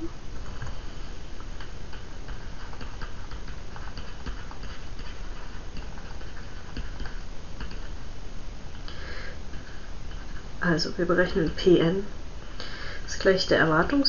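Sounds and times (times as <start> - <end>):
steady background noise: 0.0 - 14.0
stylus tapping on screen: 1.6 - 8.0.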